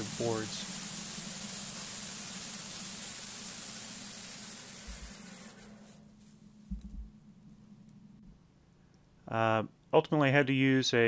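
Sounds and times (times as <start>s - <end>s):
saw blade hissing through log: 0.0s - 6.4s
bandsaw mill engine hum: 0.0s - 8.2s
low thump: 6.7s - 7.2s.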